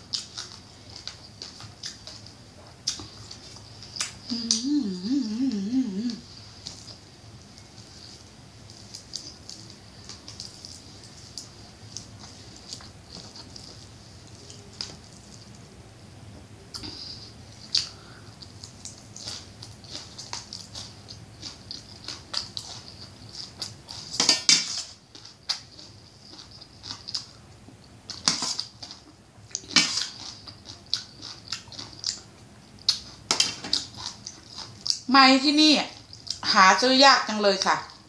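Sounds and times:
person chewing with crunches: 0.0 - 15.8, 16.7 - 35.1, 35.9 - 36.6.

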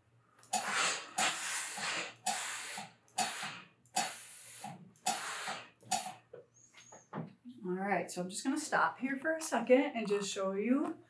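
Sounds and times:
steam iron hissing: 0.6 - 6.1.

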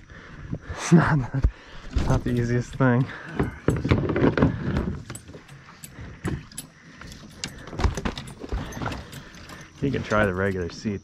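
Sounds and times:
gear knocking in a boat: 2.1 - 10.8.

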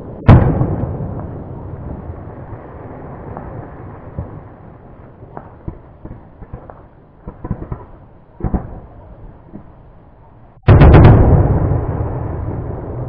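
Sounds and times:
distant fireworks bangs: 0.2 - 9.7
low rumble: 8.8 - 13.0.

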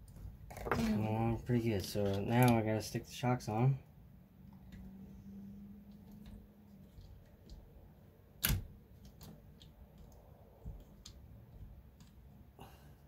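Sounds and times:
small parts clicking and tapping: 1.8 - 2.6, 5.8 - 12.5.

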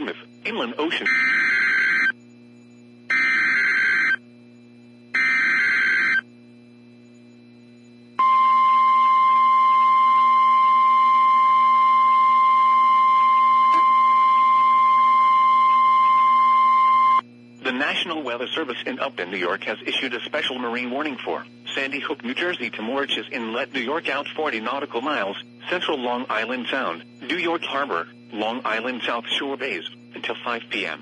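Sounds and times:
screechy digital data bursts: 0.0 - 2.2, 3.1 - 4.2, 5.1 - 6.2
loud steady alarm tone: 0.0 - 6.3, 7.0 - 31.0.

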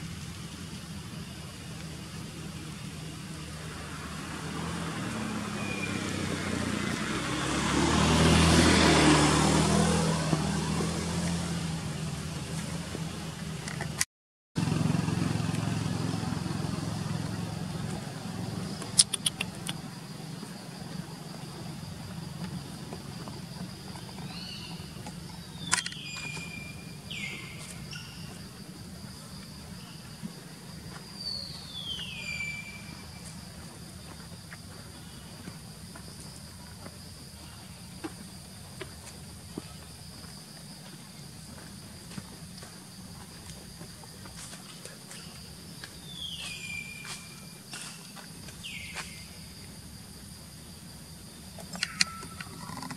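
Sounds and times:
vehicle engine running: 0.1 - 14.0, 14.6 - 31.7
sharp clicks: 18.8 - 19.8, 51.6 - 52.9.

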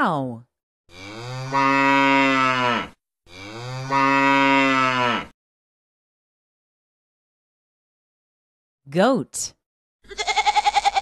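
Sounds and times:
cow mooing: 0.9 - 5.4.

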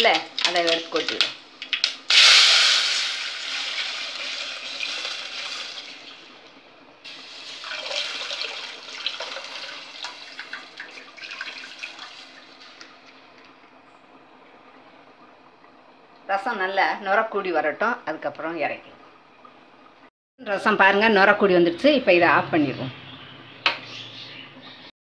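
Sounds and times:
sizzling and crackling: 0.0 - 13.8
liquid hissing in hot oil: 2.1 - 6.1, 7.1 - 10.4.

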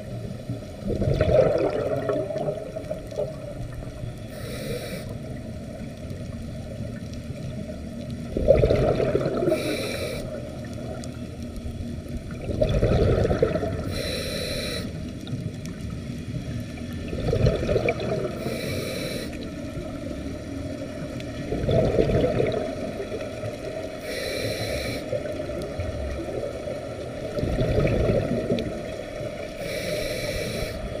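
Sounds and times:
gurgling exhaled bubbles: 0.8 - 4.3, 7.6 - 11.1, 12.3 - 14.2, 16.9 - 19.6, 21.0 - 24.0, 25.1 - 29.8
regulator inhale hiss: 4.2 - 5.4, 9.4 - 10.5, 13.8 - 15.1, 18.3 - 19.5, 24.0 - 25.2, 29.5 - 31.0.

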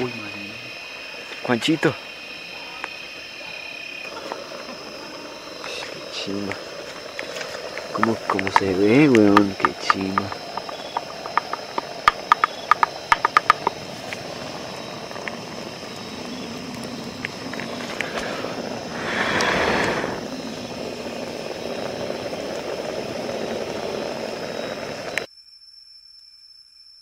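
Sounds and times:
wood fire crackling: 0.0 - 25.3
steady rushing noise: 4.4 - 25.3
sharp pops: 7.2 - 14.2, 19.0 - 20.2.

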